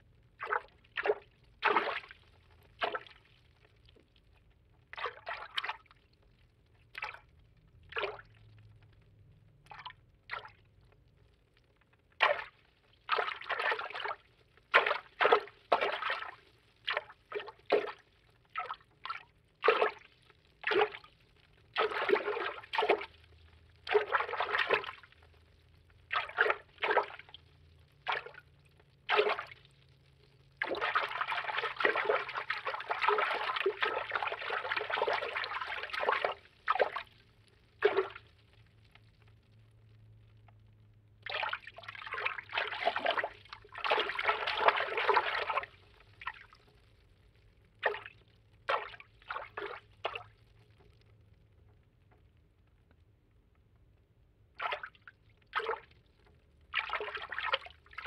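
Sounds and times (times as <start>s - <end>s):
watery swishes and sloshes: 0.3s - 39.4s, 41.2s - 53.0s, 54.5s - 58.0s.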